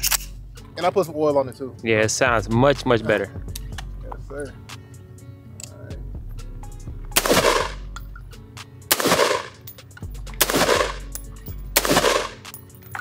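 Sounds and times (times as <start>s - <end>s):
background music: 0.0s - 13.0s
rifle shots with ringing echo: 7.2s - 7.9s, 8.9s - 9.7s, 10.4s - 12.5s.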